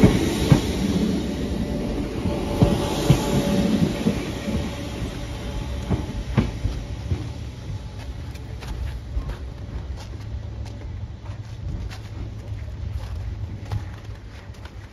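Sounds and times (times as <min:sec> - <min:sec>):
train wheels knocking over rail joints: 0:00.0 - 0:10.0
electric train pulling away: 0:00.0 - 0:12.4.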